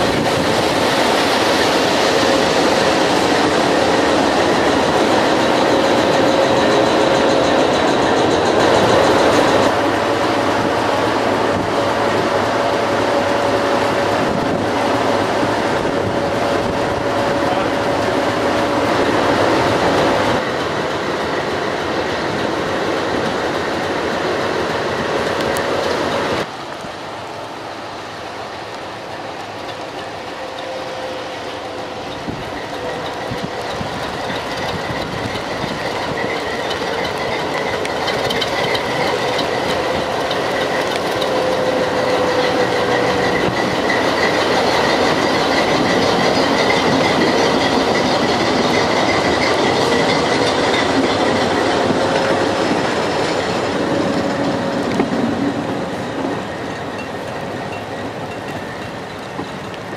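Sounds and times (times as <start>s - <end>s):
wheels clattering over rails: 0.0s - 26.6s, 28.5s - 59.9s
diesel locomotive engine running: 0.0s - 59.9s
thin wheel squeal: 30.4s - 52.4s.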